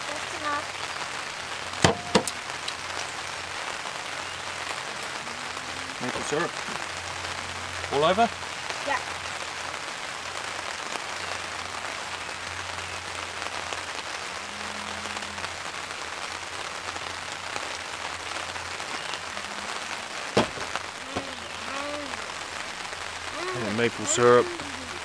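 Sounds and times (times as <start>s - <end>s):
rain pattering on a tarp: 0.0s - 25.0s
sharp knock: 1.8s - 2.4s.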